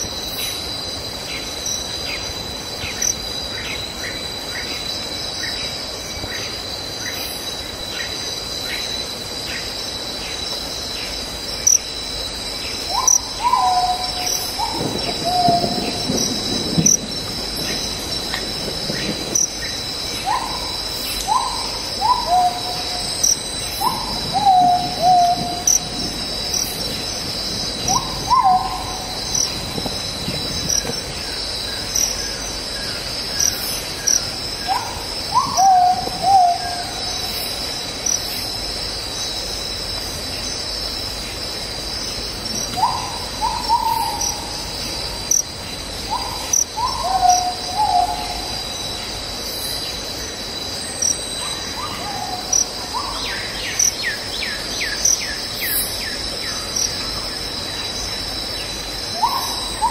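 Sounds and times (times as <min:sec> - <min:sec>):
insects buzzing: 0:00.0 - 0:59.9
bird low falling calls: 0:12.8 - 0:37.4, 0:42.5 - 0:45.2, 0:45.9 - 0:49.0.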